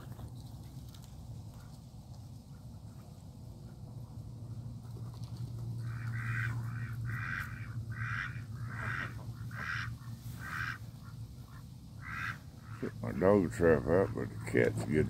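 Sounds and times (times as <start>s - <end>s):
duck quacking: 5.8s - 15.0s.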